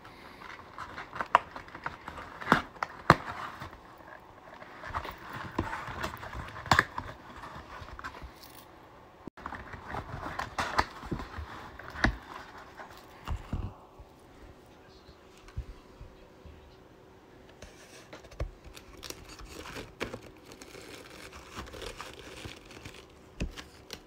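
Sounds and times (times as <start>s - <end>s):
cardboard scraping and rustling: 0.5s - 8.6s, 9.4s - 13.8s.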